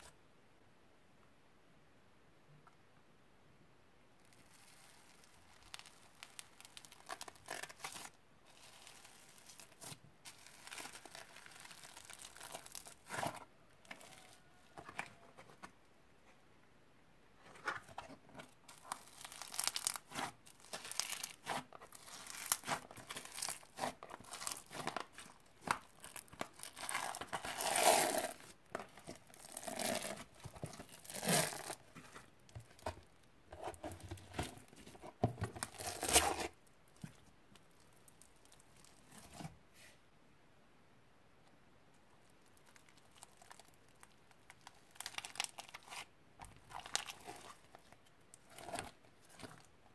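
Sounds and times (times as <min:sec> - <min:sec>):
slime crackling and popping: 0:04.3 - 0:14.4, 0:18.6 - 0:33.0, 0:42.2 - 0:49.7.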